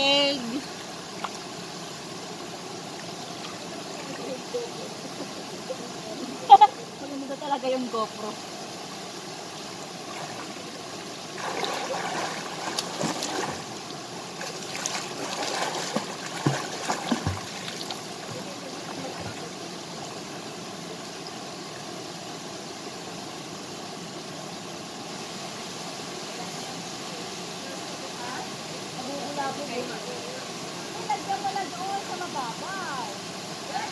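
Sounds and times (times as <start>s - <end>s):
waterfall and stream rushing: 0.0s - 33.9s
swimmer splashing and kicking: 11.4s - 13.8s, 14.4s - 19.5s.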